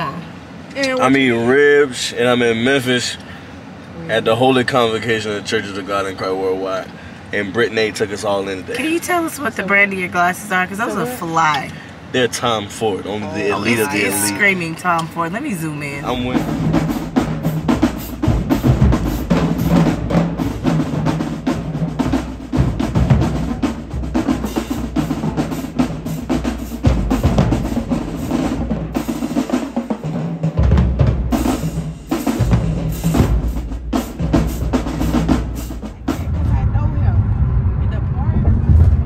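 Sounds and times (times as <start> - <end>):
marching drum line: 13.5 - 39.0
heavy bass drum hits: 16.0 - 39.0.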